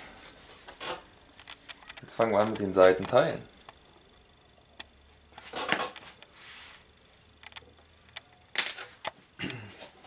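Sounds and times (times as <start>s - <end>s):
small clicks: 7.4s - 9.2s.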